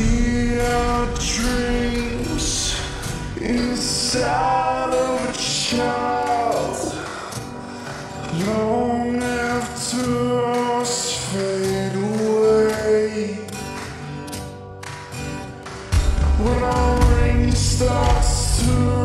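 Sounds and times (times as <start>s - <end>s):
deep bass: 0.0s - 5.4s, 16.0s - 19.0s
echoing sung vocal: 0.0s - 13.6s, 16.2s - 19.0s
reverb-drenched pop song: 0.0s - 19.0s.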